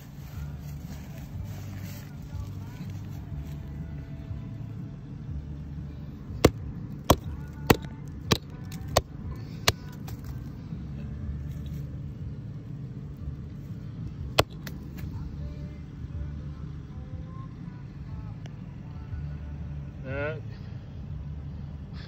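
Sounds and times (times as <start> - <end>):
low steady rumble: 0.0 - 22.0
knocks on tree trunk: 6.4 - 9.1, 14.4 - 14.8.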